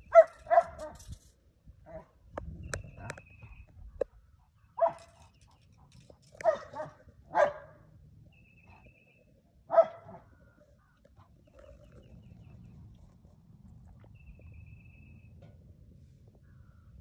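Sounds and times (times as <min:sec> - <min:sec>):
dog barking: 0:00.1 - 0:01.0, 0:04.8 - 0:05.2, 0:06.4 - 0:07.8, 0:09.7 - 0:10.2.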